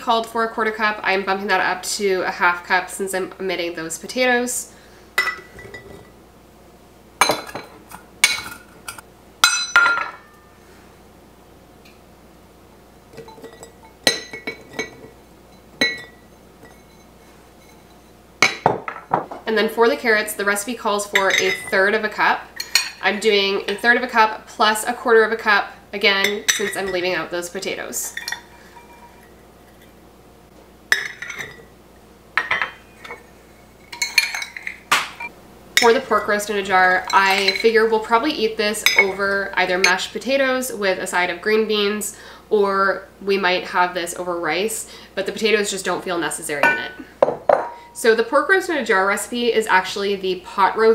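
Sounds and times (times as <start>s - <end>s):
clinks against glass jars: 13.2s - 15.2s, 15.8s - 17.0s, 21.2s - 21.8s, 28.0s - 29.9s, 30.9s - 31.7s, 32.4s - 36.0s, 37.0s - 37.8s
metal cup clinking on glass jars: 30.9s - 31.7s, 33.9s - 36.0s, 37.0s - 37.8s.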